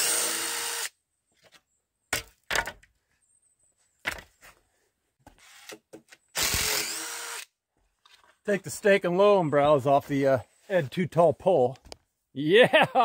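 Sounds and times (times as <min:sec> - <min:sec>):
cordless drill running: 0:00.0 - 0:00.9, 0:06.4 - 0:07.5
wooden knocks and clunks: 0:01.4 - 0:02.9, 0:04.0 - 0:04.6.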